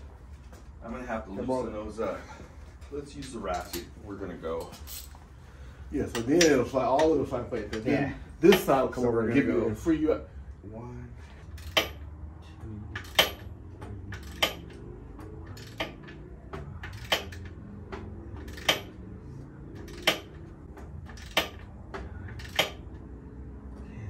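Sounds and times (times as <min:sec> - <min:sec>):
ratchet wrench clicking: 0:11.5 - 0:12.1, 0:12.9 - 0:19.1, 0:19.7 - 0:23.1.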